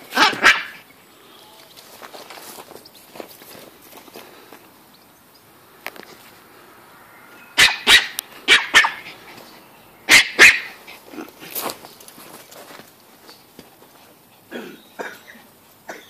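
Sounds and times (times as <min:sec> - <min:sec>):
dog barking: 0:00.1 - 0:00.8, 0:07.6 - 0:09.1, 0:10.1 - 0:10.8.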